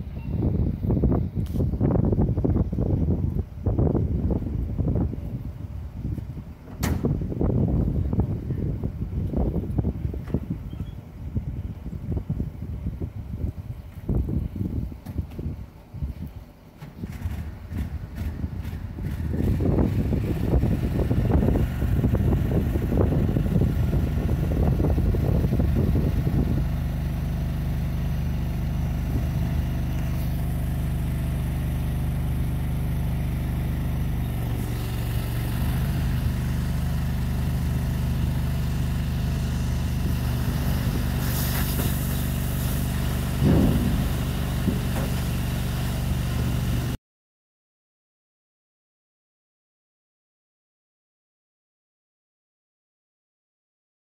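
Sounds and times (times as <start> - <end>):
vehicle engine idling: 0.0 - 47.0
rough uneven noise: 40.1 - 47.0.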